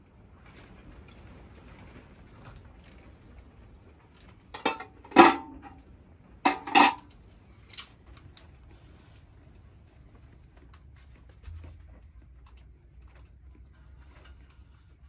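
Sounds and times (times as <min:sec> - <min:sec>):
pot lid and ladle clattering: 0:04.6 - 0:05.8, 0:06.5 - 0:07.1.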